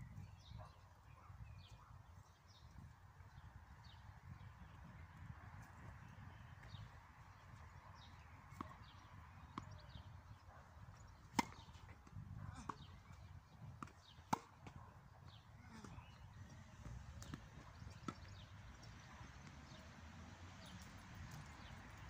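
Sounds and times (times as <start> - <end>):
rackets striking tennis ball: 11.2 - 12.0, 13.8 - 14.8.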